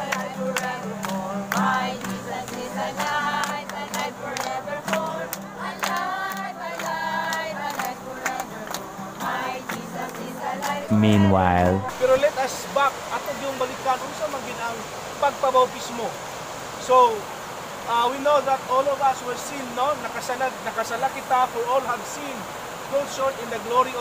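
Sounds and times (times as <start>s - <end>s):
people clapping on a beat: 0.0s - 11.9s
group singing a worship song: 0.0s - 12.3s
acoustic guitar: 0.0s - 12.5s.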